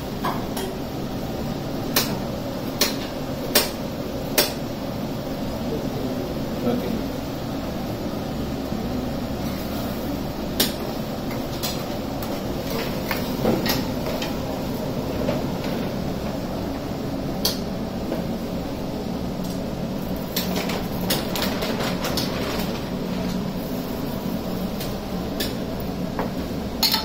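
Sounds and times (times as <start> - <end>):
steady background hum: 0.0 - 27.0
utensils clinking against pan: 26.8 - 27.0.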